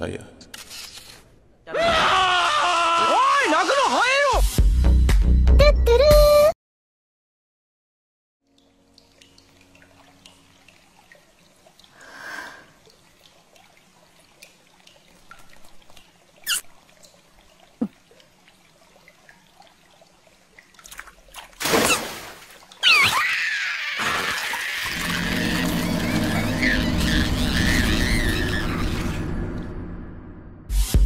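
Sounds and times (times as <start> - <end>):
faint drips: 8.5 - 21.6
water trickling and pouring: 8.5 - 22.9.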